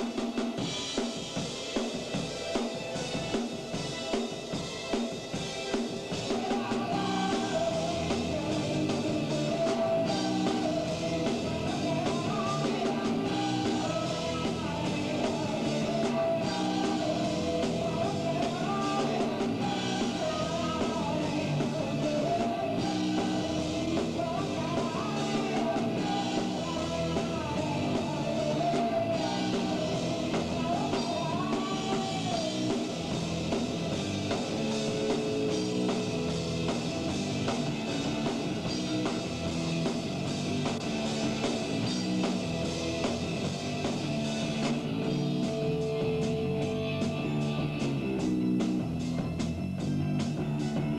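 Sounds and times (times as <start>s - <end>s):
drum kit: 0.0s - 50.9s
electric guitar: 0.0s - 50.9s
lead vocalist singing: 6.1s - 33.2s.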